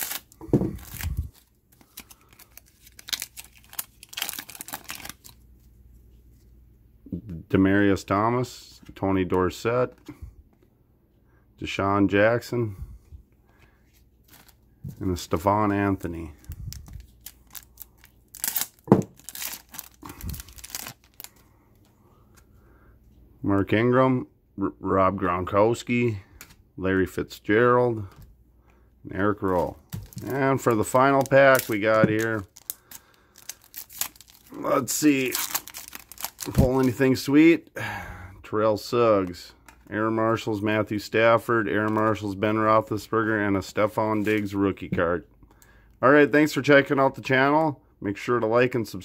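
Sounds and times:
foil wrapper crinkling: 0.0s - 5.4s, 15.3s - 21.4s, 29.4s - 37.1s.

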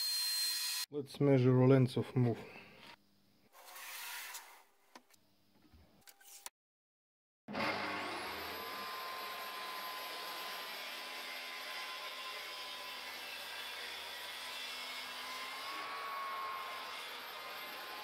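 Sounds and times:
circular saw cutting wood: 0.0s - 0.9s, 7.5s - 18.0s.

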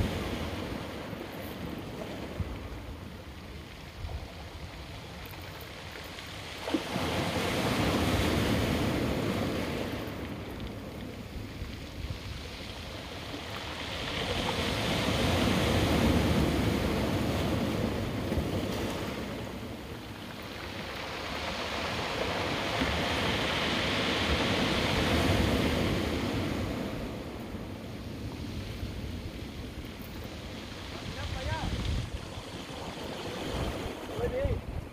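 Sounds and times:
surf breaking on rocky shore: 0.0s - 34.9s.

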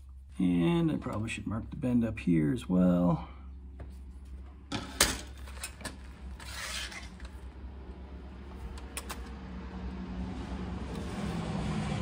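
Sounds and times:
low steady hum: 0.0s - 12.0s
marker scraping on metal: 6.4s - 7.4s.

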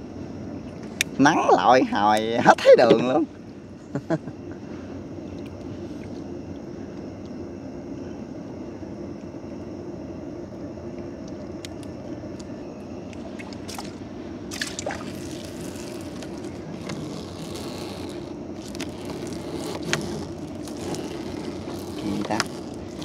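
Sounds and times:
engine drone: 3.2s - 23.0s.

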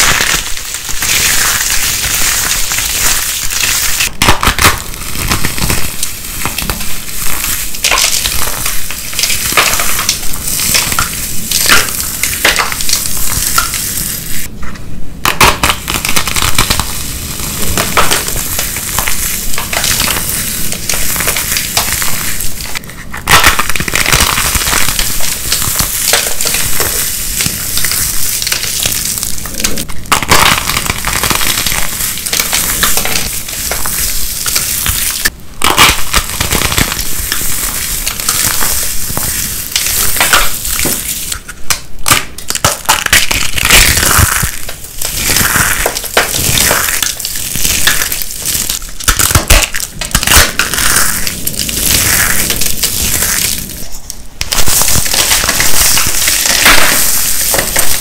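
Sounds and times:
soap cubes crunching: 42.1s - 53.8s.

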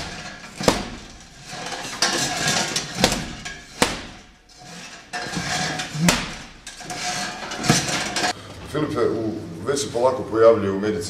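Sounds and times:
boxing gloves punching a bag: 0.0s - 1.3s, 2.9s - 4.4s, 6.0s - 6.6s.

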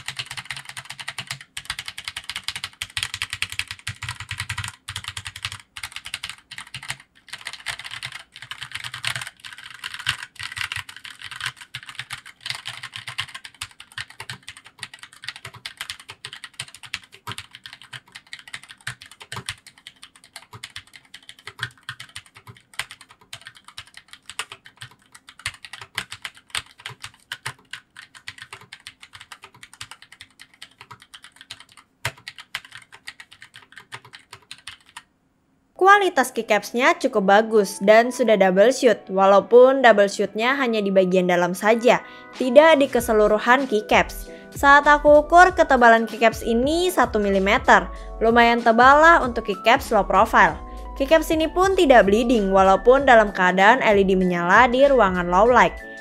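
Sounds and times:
fast keyboard keystroke clicks: 0.0s - 35.1s.

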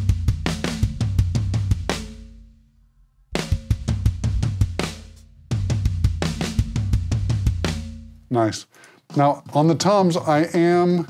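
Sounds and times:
drum kit pattern: 0.0s - 2.5s, 3.4s - 8.4s.

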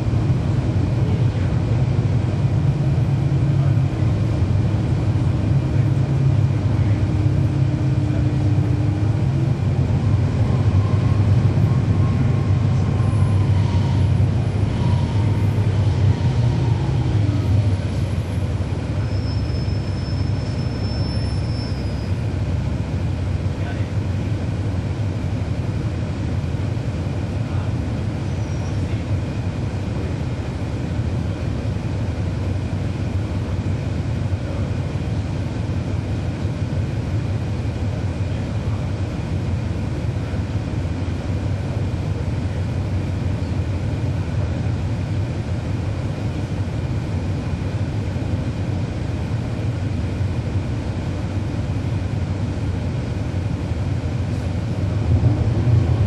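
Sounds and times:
bus engine and road drone: 0.0s - 56.0s.

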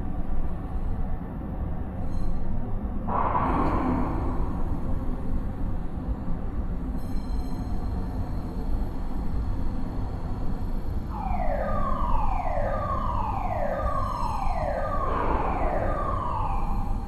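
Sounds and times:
low industrial rumble: 3.0s - 6.8s, 10.7s - 17.0s
warning siren falling tone: 11.1s - 17.0s.

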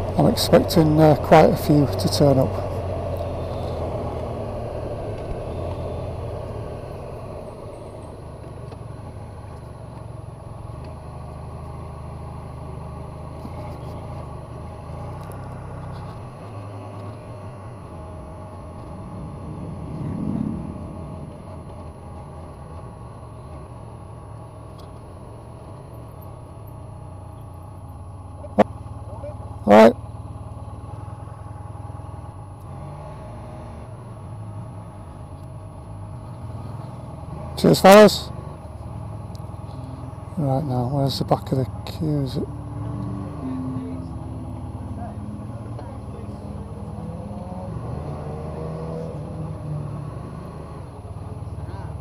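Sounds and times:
motorcycle passing by: 0.0s - 9.5s, 11.1s - 22.9s, 36.0s - 52.0s
motorcycle engines idling: 0.0s - 47.8s, 49.0s - 52.0s.

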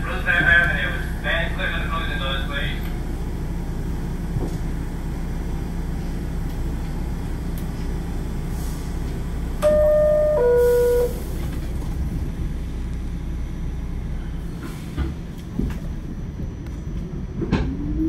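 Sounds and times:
subway car low rumble: 0.0s - 18.0s
two-note descending door chime: 9.6s - 11.2s.

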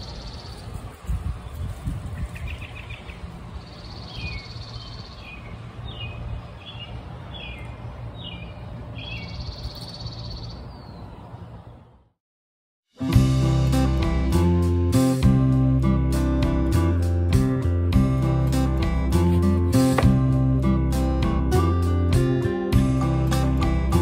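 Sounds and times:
birds chirping: 0.0s - 12.1s.

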